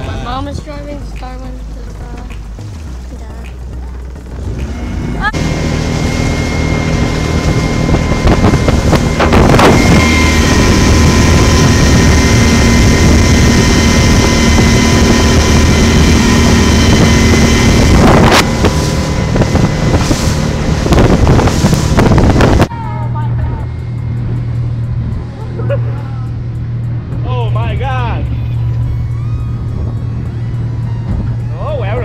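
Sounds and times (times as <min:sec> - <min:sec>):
hull slapping water: 0:00.0 - 0:22.7
rushing water: 0:00.0 - 0:22.7
speedboat engine running: 0:00.0 - 0:32.0
wind buffeting microphone: 0:00.0 - 0:32.0.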